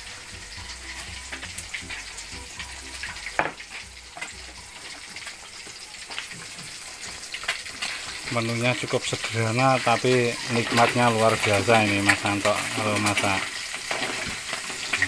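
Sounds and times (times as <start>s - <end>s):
fish sizzling in hot oil: 0.0s - 15.0s.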